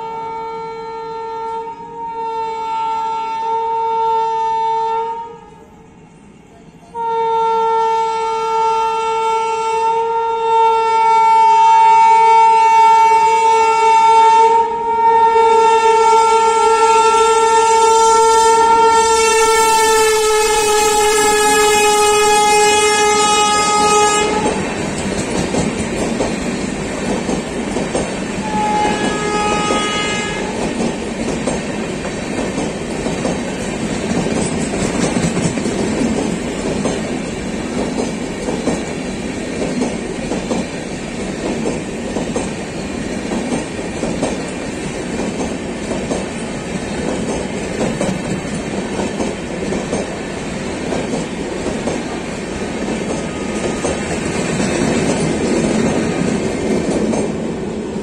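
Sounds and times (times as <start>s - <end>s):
two-tone locomotive horn: 0.0s - 24.9s, 28.4s - 30.9s, 53.0s - 54.7s
train wheels clattering over rail joints: 24.3s - 29.9s, 30.6s - 57.8s.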